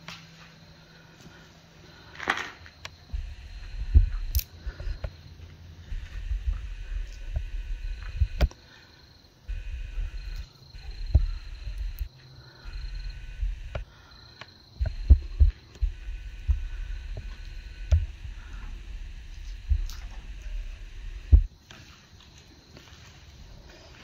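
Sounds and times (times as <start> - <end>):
footsteps: 0.0 - 8.5, 9.5 - 13.9, 14.8 - 24.0
sharp clicks: 2.8 - 5.2, 6.0 - 8.6, 9.5 - 12.1, 13.2 - 18.2
microphone handling rumble: 3.1 - 8.5, 9.5 - 12.1, 12.7 - 13.8, 14.8 - 21.5.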